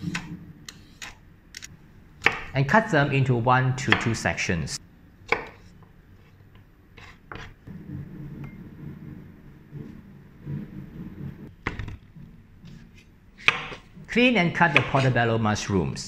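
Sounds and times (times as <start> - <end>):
knife tapping cutting board: 14.7 - 15.1.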